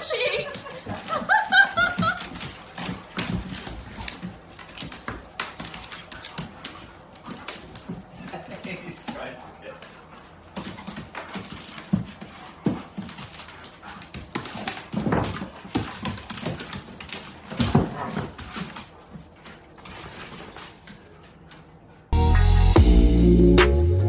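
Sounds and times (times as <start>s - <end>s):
animals scuffling: 0.0s - 22.1s
loud electronic music: 22.2s - 24.0s.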